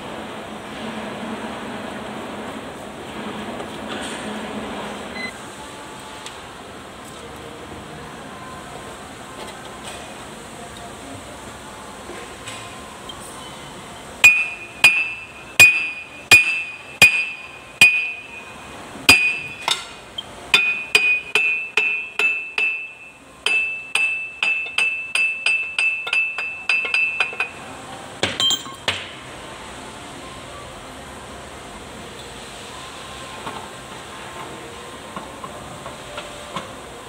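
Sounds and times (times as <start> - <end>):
hammer striking metal: 14.2 - 27.6, 28.2 - 29.1.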